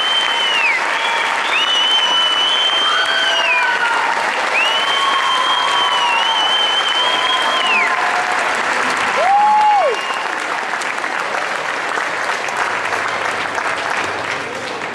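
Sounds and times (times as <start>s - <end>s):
shrill whistle: 0.0s - 3.9s, 4.5s - 7.9s, 9.8s - 10.3s
audience applauding: 0.0s - 14.9s
lower whistle rising and falling: 4.5s - 8.0s.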